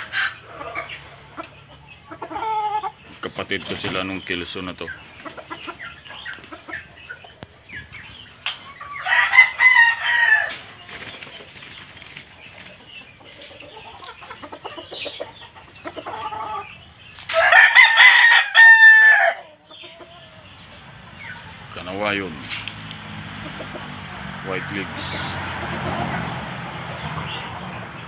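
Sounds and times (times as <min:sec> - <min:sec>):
rooster crowing: 0:08.8 - 0:10.8, 0:17.3 - 0:19.6.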